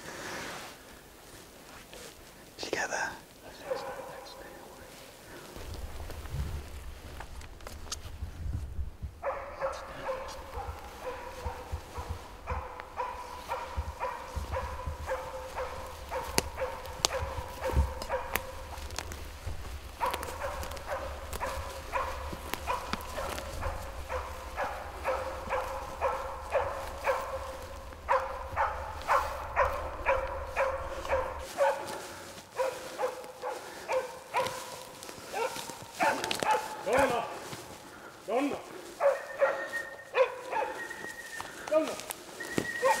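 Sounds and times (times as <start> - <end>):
dog barking: 3.5 - 4.6, 9.2 - 37.5, 38.8 - 41.2, 42.7 - 43.0
low rumble: 5.6 - 9.6.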